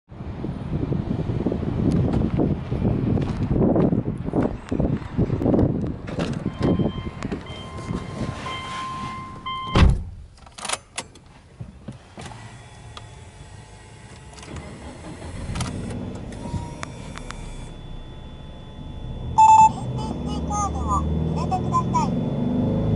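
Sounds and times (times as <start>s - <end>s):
car door warning chime: 6.5s - 9.9s, 16.1s - 22.9s
car door shutting thud: 9.7s - 10.2s.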